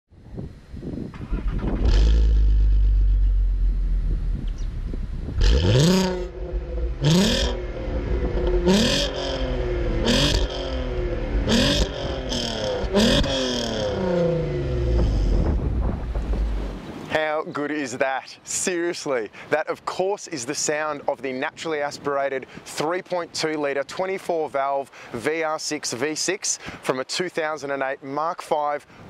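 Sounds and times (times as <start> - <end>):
car engine idling and revving: 1.2 - 16.8.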